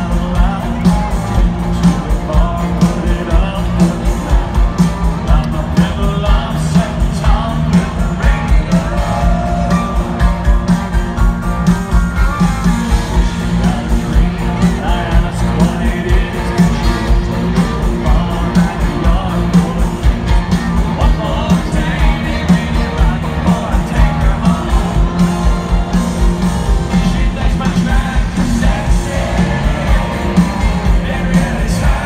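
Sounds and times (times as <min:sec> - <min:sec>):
person singing: 0:00.0 - 0:10.5, 0:13.2 - 0:32.0
country band playing: 0:00.0 - 0:32.0
heavy bass beat: 0:00.0 - 0:32.0.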